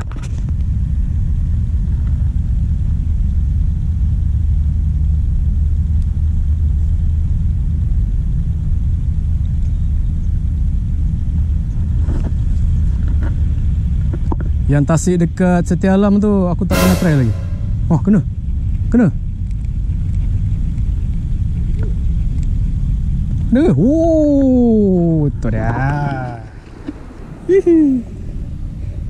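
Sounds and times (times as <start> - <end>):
low rumble: 16.7 - 18.0.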